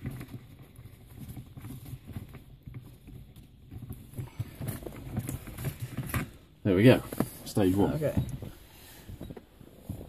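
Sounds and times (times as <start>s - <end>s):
soft rustle: 0.0s - 10.0s.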